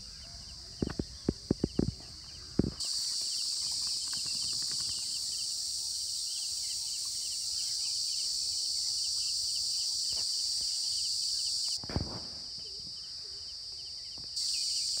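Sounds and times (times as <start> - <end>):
insect chorus buzzing: 0.0 - 15.0
dull thump: 11.8 - 12.5.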